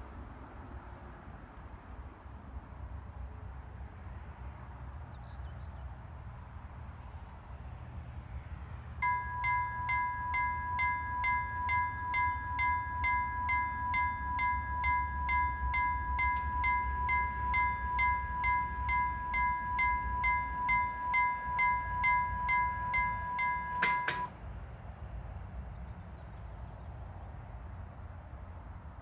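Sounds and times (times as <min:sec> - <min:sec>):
level crossing warning bell: 0:09.0 - 0:24.4.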